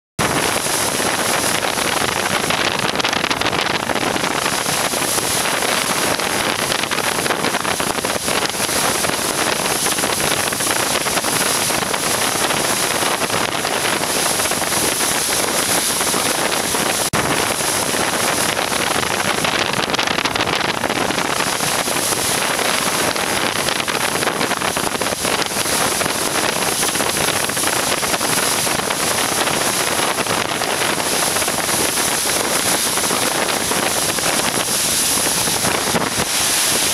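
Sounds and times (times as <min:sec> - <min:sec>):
surf breaking: 0:00.2 - 0:36.9
wind noise: 0:00.2 - 0:36.9.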